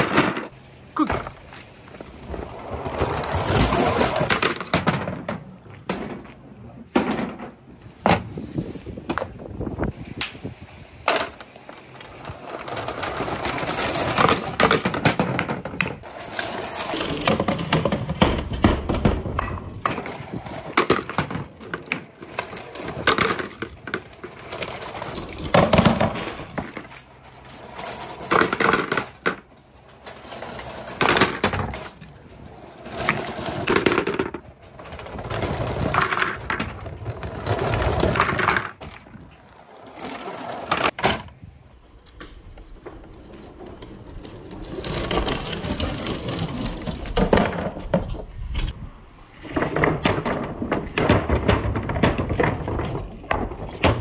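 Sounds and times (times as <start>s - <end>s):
balls rolling down gutter: 0.0s - 54.0s.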